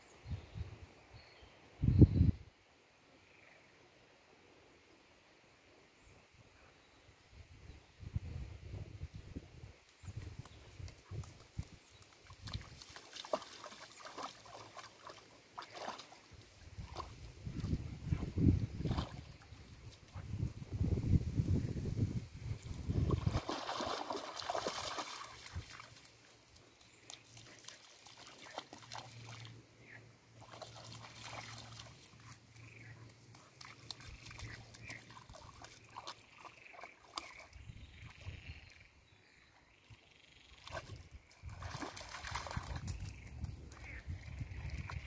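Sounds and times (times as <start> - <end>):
dog splashing through water: 11.2 - 20.2, 23.0 - 26.4, 27.1 - 29.6, 30.4 - 32.6, 33.3 - 38.3, 40.6 - 43.1.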